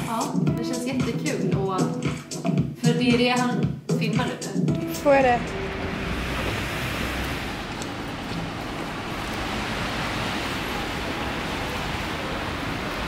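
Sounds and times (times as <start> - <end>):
city street traffic: 4.8 - 13.0.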